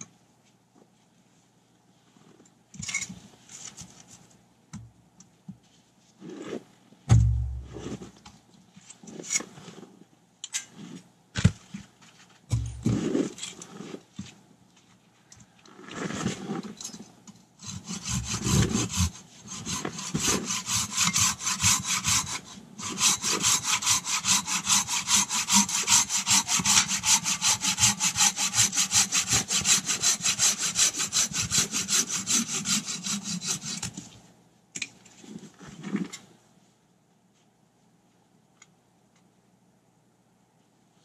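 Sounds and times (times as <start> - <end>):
hand saw cutting wood: 12.5 - 14.0, 17.6 - 34.1.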